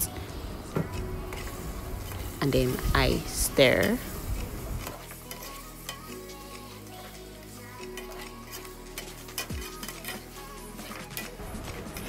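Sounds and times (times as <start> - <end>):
food sizzling in hot oil: 0.9 - 12.0
metal spoon scraping pot: 3.5 - 12.0.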